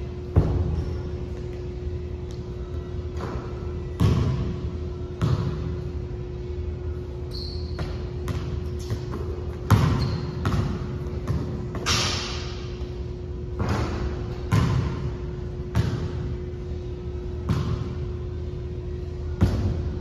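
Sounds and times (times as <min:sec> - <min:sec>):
basketball bouncing in a gym: 0:00.0 - 0:01.6, 0:02.3 - 0:06.5, 0:07.3 - 0:20.0
steady hum: 0:00.0 - 0:20.0
high squeaks: 0:07.3 - 0:08.0.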